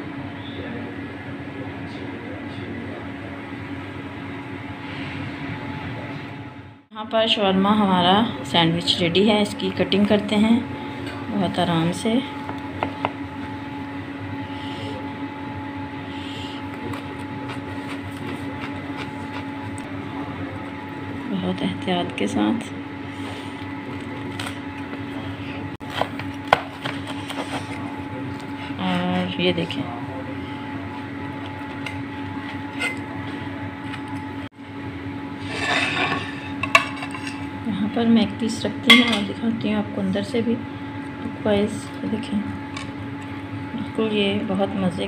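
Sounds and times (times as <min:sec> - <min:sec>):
steady mechanical hum: 0:00.0 - 0:45.0
food scraping on wooden board: 0:35.4 - 0:37.4.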